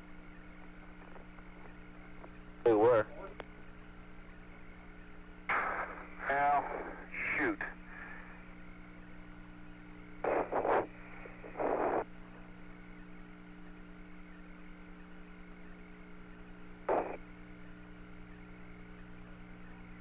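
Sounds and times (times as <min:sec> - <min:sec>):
radio hum and hiss: 0:00.0 - 0:20.0
short bursts of static: 0:05.4 - 0:08.9, 0:09.7 - 0:20.0.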